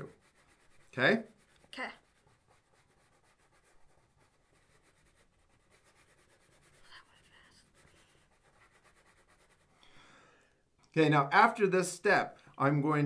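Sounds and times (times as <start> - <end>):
colored pencil scratching on paper: 0.0 - 9.8.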